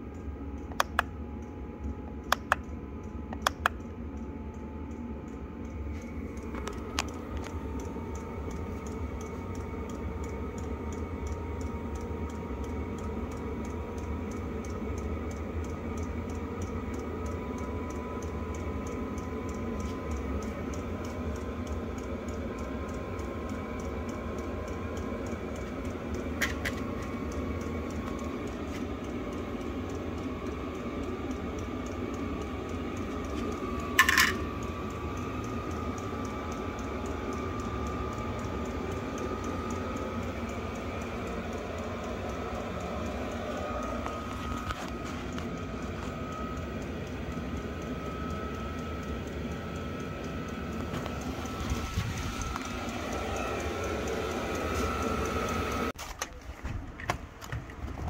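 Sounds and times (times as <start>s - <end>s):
heater blower hum with whine: 0.0s - 58.0s
sharp clicks: 0.6s - 1.5s, 2.2s - 4.3s.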